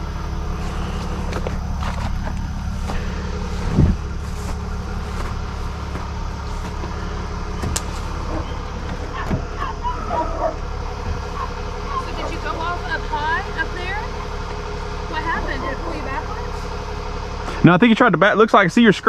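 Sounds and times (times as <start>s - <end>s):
truck engine idling: 0.0s - 19.0s
dull thump: 3.6s - 9.6s.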